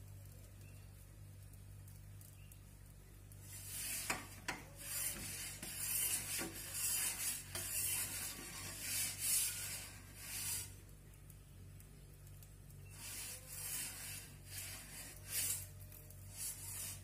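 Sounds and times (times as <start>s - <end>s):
metal peel scraping on stone: 3.4s - 10.8s, 12.9s - 17.0s.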